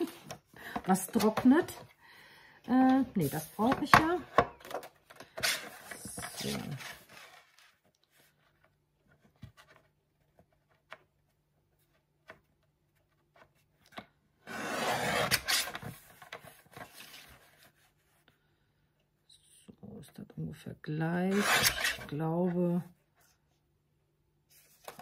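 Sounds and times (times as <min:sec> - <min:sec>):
paper trimmer cutting: 0:14.5 - 0:15.8, 0:21.3 - 0:22.1.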